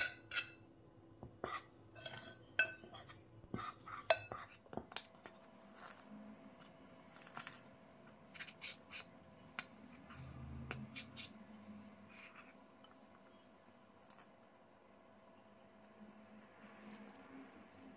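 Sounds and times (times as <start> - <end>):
metal utensil scraping glass bowl: 0.0 - 0.6, 1.4 - 4.6.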